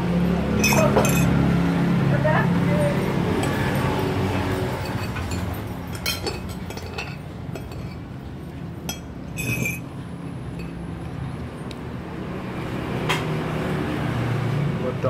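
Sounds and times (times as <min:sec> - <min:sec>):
cutlery clinking on plate and glass: 0:00.6 - 0:01.3, 0:03.4 - 0:08.0, 0:08.8 - 0:09.8.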